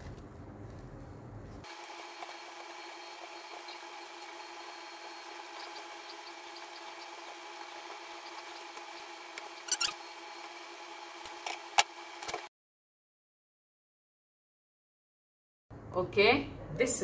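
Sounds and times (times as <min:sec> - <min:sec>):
steady hum: 0:00.0 - 0:12.5.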